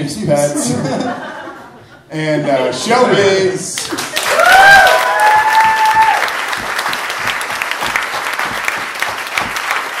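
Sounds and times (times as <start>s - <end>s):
audience applauding: 3.8s - 10.0s.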